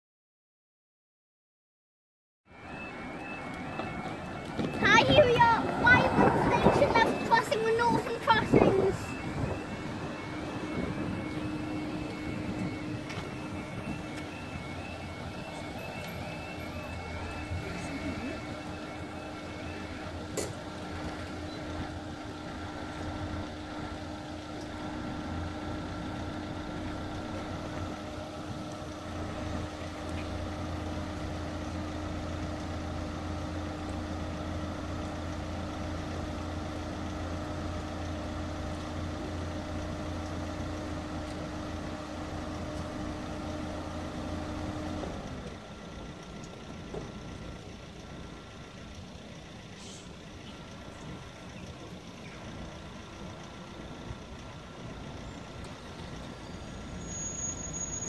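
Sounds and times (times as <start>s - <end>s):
roadside background noise: 2.5s - 58.0s
engine idling hum: 2.6s - 58.0s.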